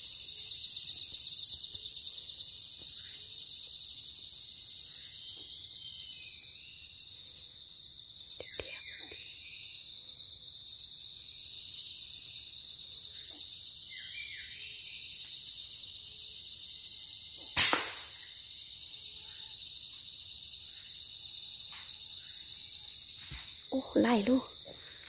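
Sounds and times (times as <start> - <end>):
insect chorus: 0.0 - 25.0
sharp loud crack: 17.6 - 18.2.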